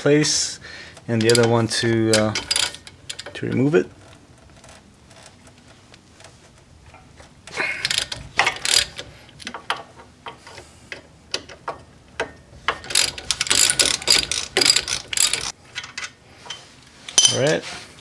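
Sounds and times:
socket ratchet clicking: 12.8s - 15.5s.

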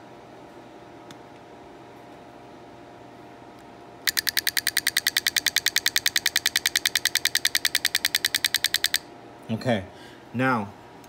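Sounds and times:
solenoid clicking rapidly: 4.1s - 9.0s.

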